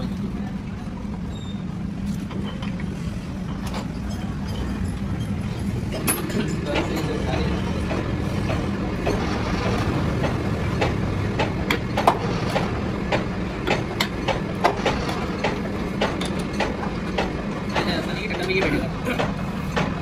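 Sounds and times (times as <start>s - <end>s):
low machine hum: 0.0s - 20.0s
metal clicks and knocks: 7.8s - 20.0s.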